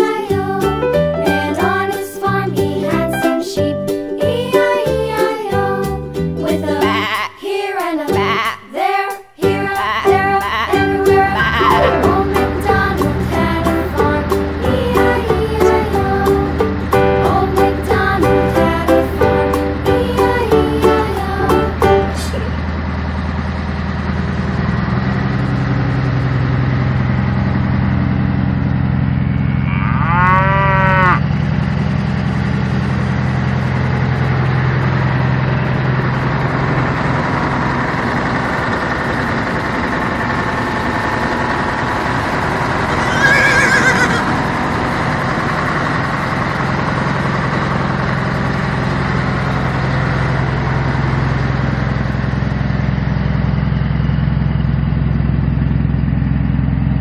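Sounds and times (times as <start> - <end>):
tractor engine idling: 10.0 - 57.0
horse whinnying: 11.4 - 12.0, 29.6 - 31.2, 42.9 - 44.4
cow mooing: 11.4 - 12.2, 29.4 - 31.3, 42.9 - 44.3.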